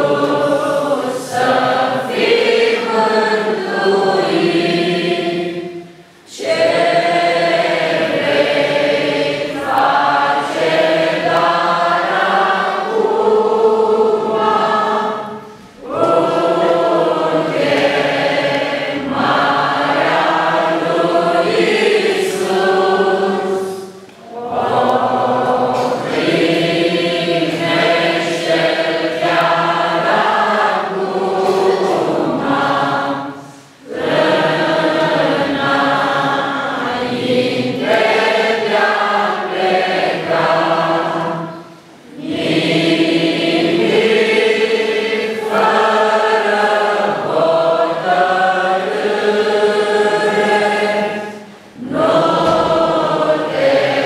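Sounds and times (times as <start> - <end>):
congregation singing a hymn: 0.0 - 54.0.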